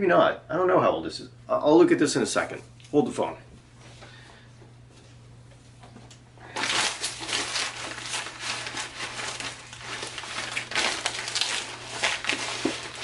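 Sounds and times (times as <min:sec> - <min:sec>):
packaging crinkling: 0:06.5 - 0:13.0.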